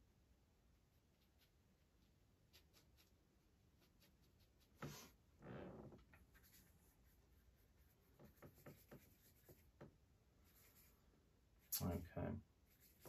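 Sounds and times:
brush scraping palette: 0.9s - 5.4s, 6.0s - 11.8s, 12.6s - 13.0s.

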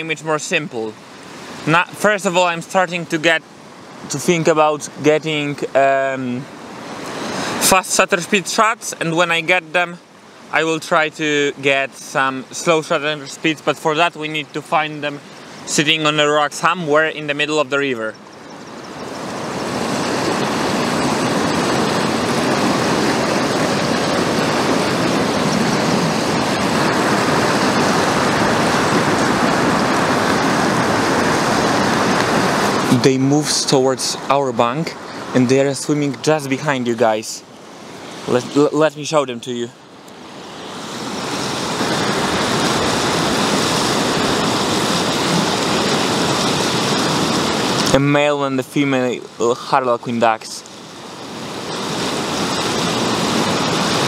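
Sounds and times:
river rapids rushing: 0.0s - 54.0s.

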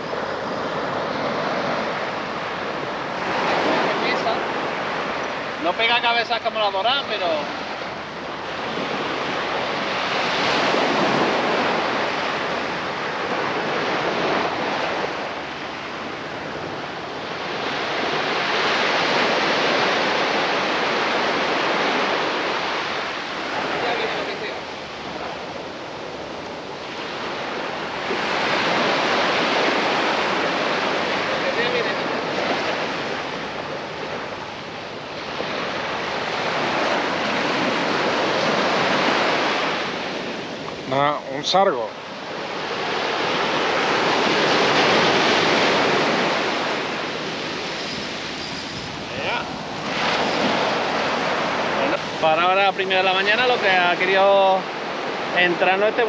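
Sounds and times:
small waves breaking on beach: 0.0s - 56.0s
small surf breaking on sand: 42.0s - 56.0s.

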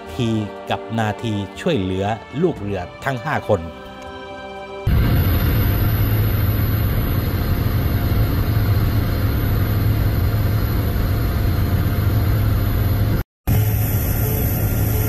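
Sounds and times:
helicopter rotor and engine drone: 4.9s - 15.0s.

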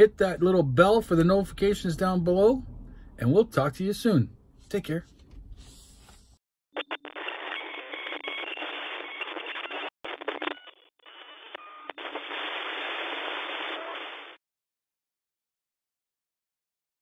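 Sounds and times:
radio static hiss: 6.8s - 14.4s.

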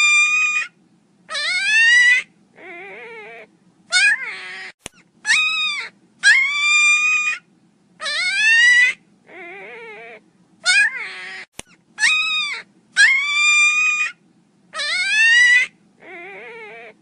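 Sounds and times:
puppy whining: 0.0s - 17.0s.

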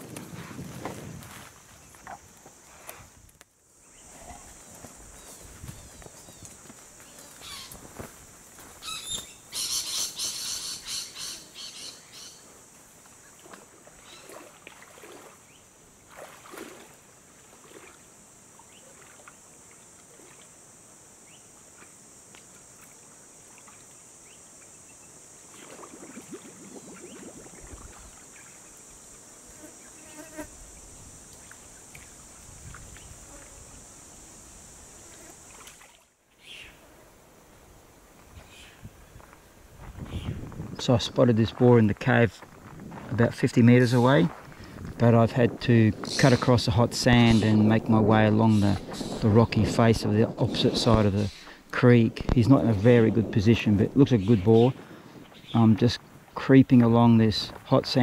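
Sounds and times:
bird calls: 5.2s - 7.8s, 8.8s - 12.4s, 36.4s - 36.8s.

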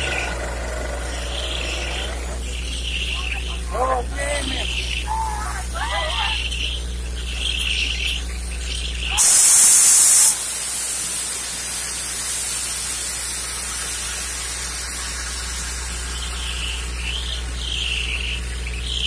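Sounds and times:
drilling rig low drone: 0.0s - 9.6s
water and air gushing hiss: 8.4s - 17.2s
loud harsh hiss: 9.1s - 17.1s.

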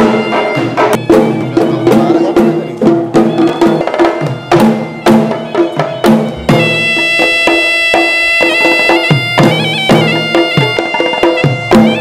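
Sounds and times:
drums struck: 0.0s - 7.7s
shrill reedy shawm melody: 0.0s - 12.0s.

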